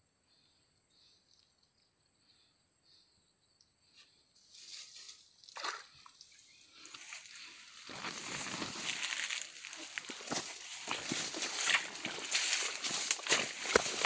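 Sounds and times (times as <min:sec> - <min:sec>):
rustling grass and dry leaves: 0:04.4 - 0:14.0.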